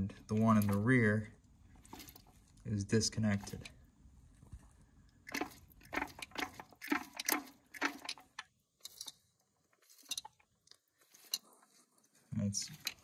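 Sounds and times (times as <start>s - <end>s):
metal gearbox clicking: 5.3s - 9.2s, 12.6s - 13.0s.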